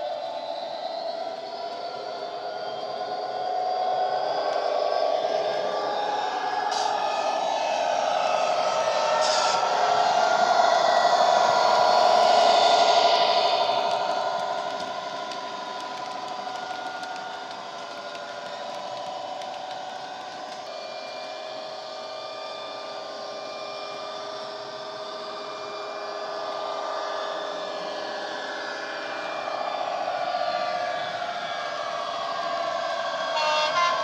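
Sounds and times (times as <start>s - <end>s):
diesel engine sound from small speaker: 33.2s - 34.0s.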